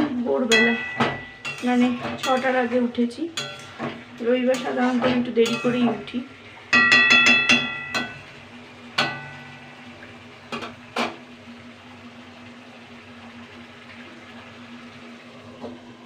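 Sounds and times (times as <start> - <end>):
metal utensil clink: 0.5 - 2.8, 3.4 - 6.2, 6.8 - 8.3.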